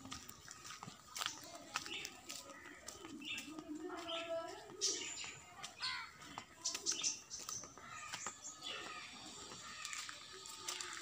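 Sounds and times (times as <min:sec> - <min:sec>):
faint outdoor background sound: 0:00.0 - 0:11.0
small birds chirping: 0:00.0 - 0:11.0.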